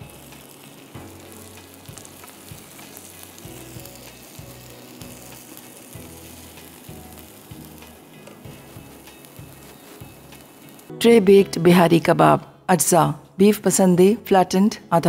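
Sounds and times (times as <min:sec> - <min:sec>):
kebab sizzling and crackling: 0:00.0 - 0:10.9.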